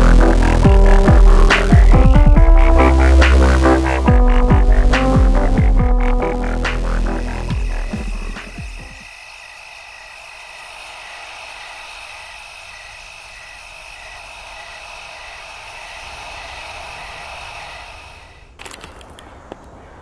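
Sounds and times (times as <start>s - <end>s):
background music: 0.0s - 9.0s
high animal trill: 0.0s - 9.1s.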